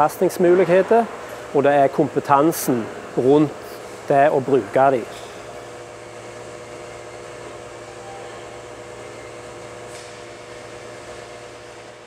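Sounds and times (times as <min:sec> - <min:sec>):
mechanical fan hum: 0:00.0 - 0:12.0.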